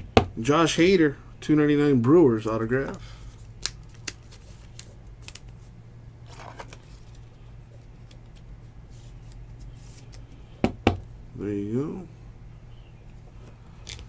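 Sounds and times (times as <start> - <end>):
low steady hum: 0.0 - 14.0
card rustle: 3.1 - 5.7, 6.3 - 10.4.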